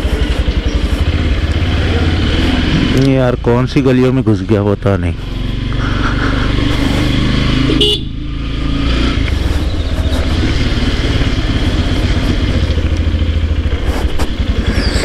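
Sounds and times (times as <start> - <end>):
motorcycle engine running: 0.0 - 15.0
short horn toot: 7.7 - 8.2.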